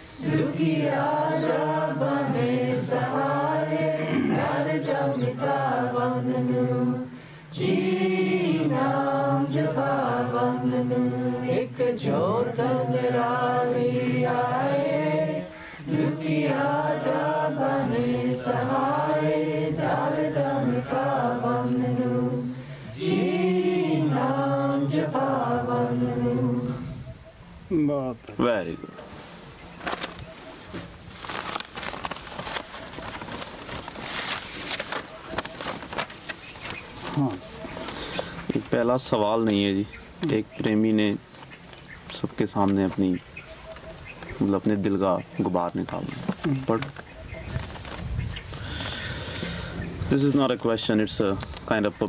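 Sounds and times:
hymn chanting: 0:00.0 - 0:27.2.

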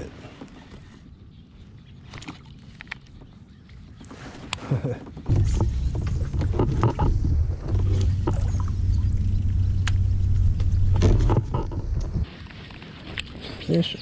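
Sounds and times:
sharp clicks and knocks: 0:05.1 - 0:08.9, 0:09.5 - 0:12.2
low rumble: 0:05.3 - 0:12.3
steady low hum: 0:05.3 - 0:12.3.

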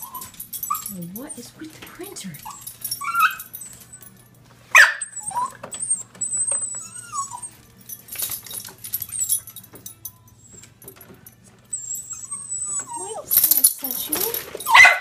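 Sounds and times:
dog whining and whimpering: 0:00.0 - 0:01.4, 0:02.4 - 0:15.0
dog barking: 0:04.7 - 0:05.6, 0:14.6 - 0:15.0.

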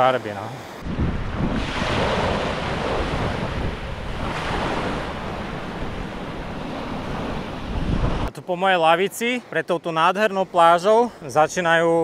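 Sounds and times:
small waves washing on sand: 0:00.8 - 0:08.3
wind buffeting microphone: 0:00.8 - 0:08.3.

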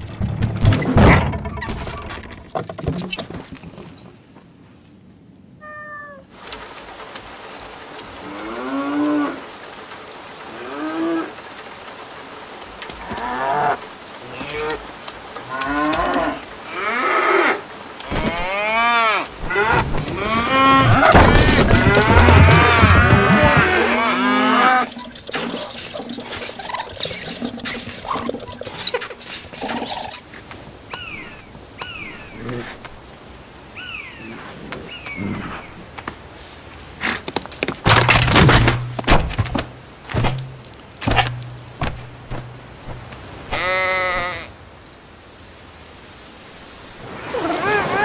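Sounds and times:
cows mooing: 0:15.4 - 0:25.0.

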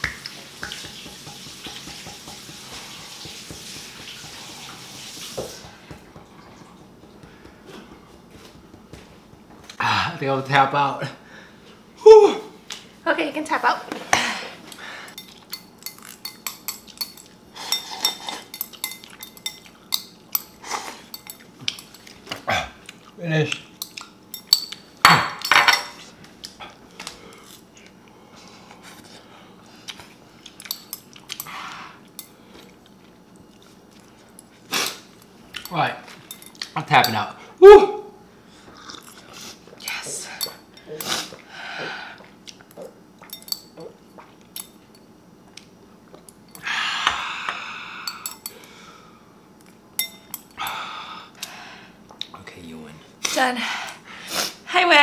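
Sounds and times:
metal spoon clinking ceramic bowl: 0:15.1 - 0:22.1, 0:23.8 - 0:26.0, 0:35.6 - 0:37.2, 0:43.2 - 0:43.8, 0:48.0 - 0:48.6, 0:50.0 - 0:50.6
glass clinking on stone countertop: 0:23.8 - 0:26.0, 0:43.2 - 0:44.0, 0:46.2 - 0:48.6, 0:50.0 - 0:50.6.

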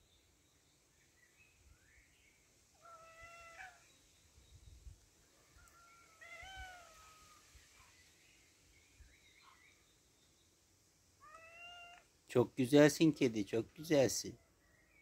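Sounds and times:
cat meowing: 0:02.8 - 0:03.8, 0:06.0 - 0:07.4, 0:11.2 - 0:12.1.

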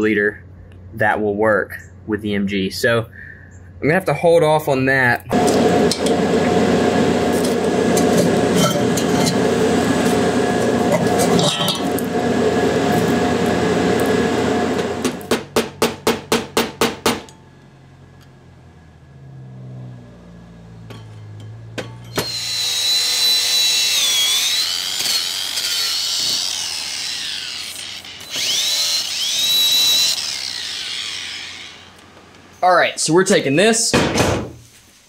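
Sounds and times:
angle grinder whine: 0:05.3 - 0:15.4, 0:20.5 - 0:32.6
sharp knocks: 0:15.0 - 0:17.3.

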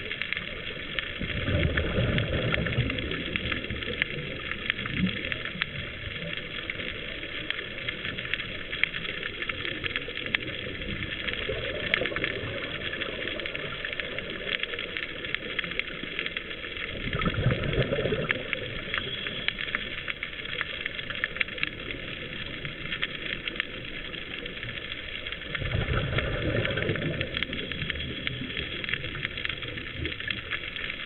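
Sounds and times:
scuba exhaust bubbles: 0:00.0 - 0:31.0
underwater crackle of clicks: 0:00.0 - 0:31.0.

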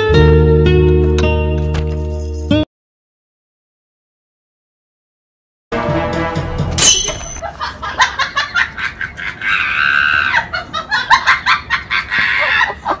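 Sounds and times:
people laughing and calling out: 0:07.4 - 0:13.0.

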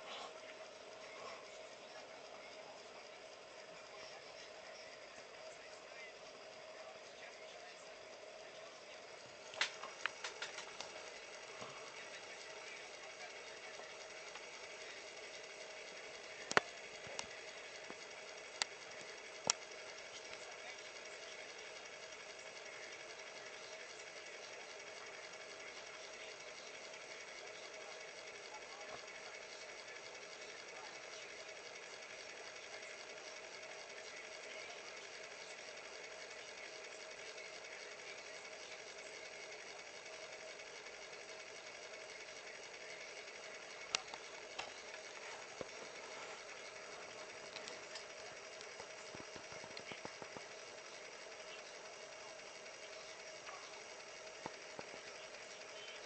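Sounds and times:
cd player whirring hum: 0:00.0 - 0:56.0
sharp clicks: 0:09.5 - 0:12.3.

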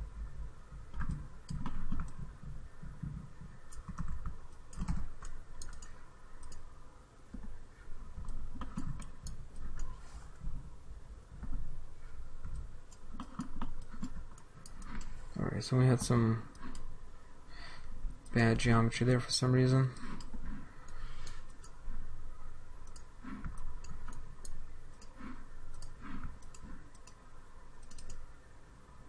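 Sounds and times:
keyboard and mouse clicks: 0:00.9 - 0:06.7, 0:08.2 - 0:10.0, 0:12.4 - 0:15.2, 0:15.9 - 0:16.9, 0:20.0 - 0:21.8, 0:22.8 - 0:27.2, 0:27.8 - 0:28.2.

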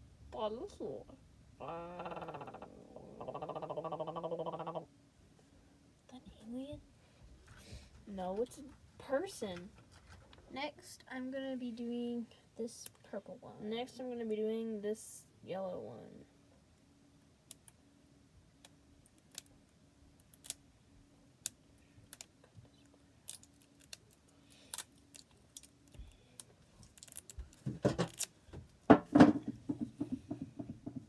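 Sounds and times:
wrappers crinkling: 0:26.7 - 0:28.3
handling knocks and rustling: 0:26.9 - 0:31.0.

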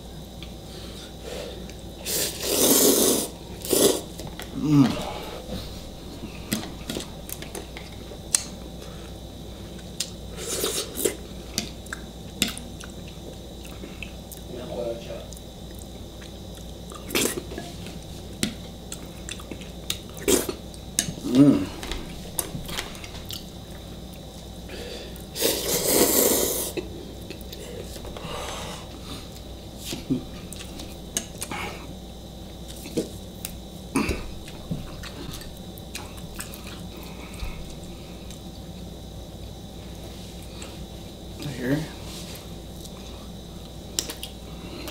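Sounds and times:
loud slurp of noodle soup: 0:02.0 - 0:04.0
chewing: 0:18.4 - 0:20.9, 0:34.4 - 0:38.9.

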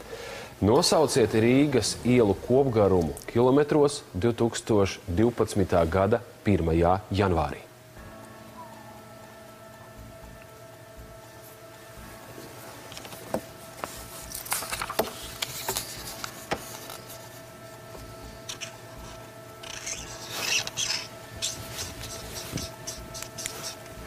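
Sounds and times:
faint steady hum: 0:00.0 - 0:24.0
pen scratching on paper: 0:18.5 - 0:23.9.

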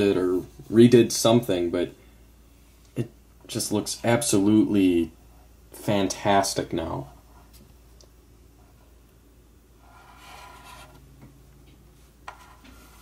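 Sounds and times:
low room hum: 0:00.0 - 0:13.0
hand rubbing plastic figure: 0:09.8 - 0:11.0.

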